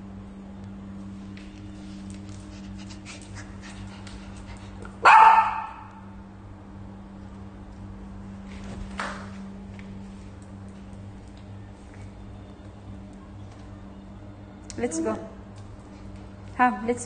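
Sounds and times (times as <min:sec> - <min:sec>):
small dog barking: 0:05.0 - 0:06.0.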